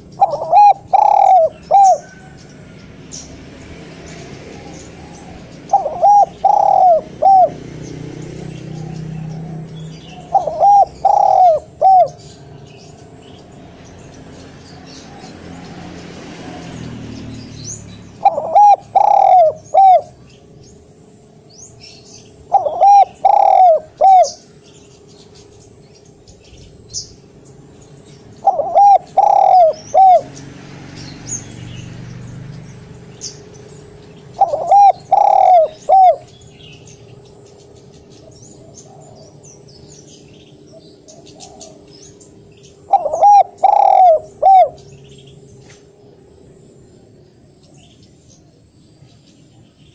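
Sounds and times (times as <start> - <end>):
dove cooing: 0.0 - 2.8, 4.2 - 13.6, 18.1 - 20.3, 21.8 - 24.8, 28.3 - 30.4, 33.7 - 37.2, 38.2 - 45.1.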